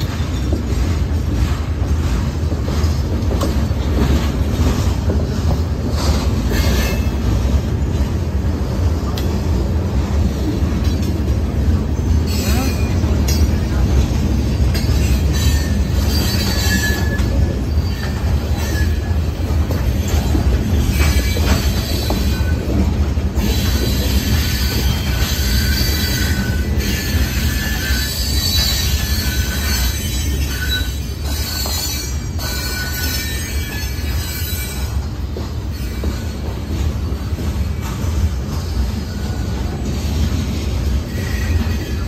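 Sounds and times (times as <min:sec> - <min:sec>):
train wheels rumbling on rail: 0:00.0 - 0:42.0
high wheel squeals: 0:14.9 - 0:19.2, 0:23.4 - 0:35.1, 0:41.0 - 0:42.0.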